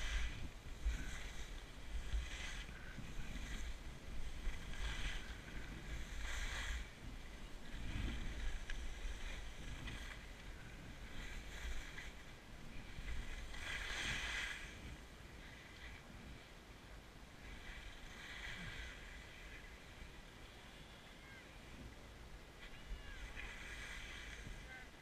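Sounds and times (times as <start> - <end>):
skis scraping over snow: 0.0 - 15.7
wind rumble on microphone: 0.0 - 20.5, 21.1 - 25.0.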